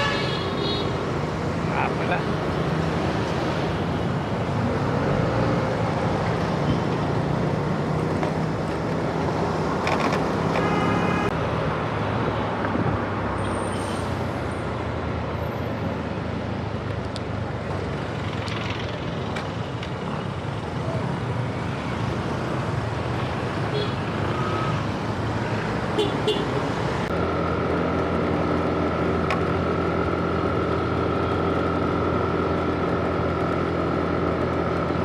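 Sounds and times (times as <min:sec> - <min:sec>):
road noise: 0:00.0 - 0:35.0
vehicle engine hum: 0:00.0 - 0:35.0.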